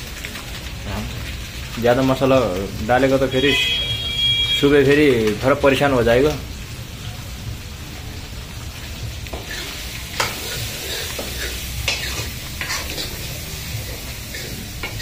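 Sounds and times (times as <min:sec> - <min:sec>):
curry sizzling in pan: 0:00.0 - 0:15.0
spoon scraping and knocking pan: 0:09.3 - 0:15.0.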